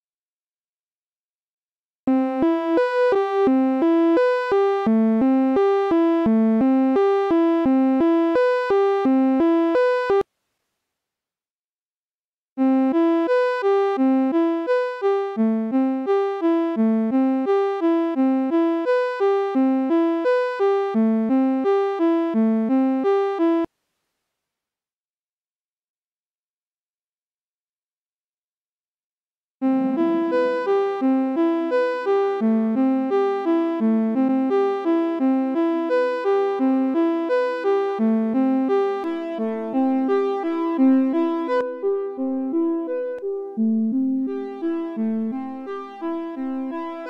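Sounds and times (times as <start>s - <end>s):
synthesizer plucky melody: 2.1s - 10.2s, 12.6s - 23.7s, 29.6s - 47.0s.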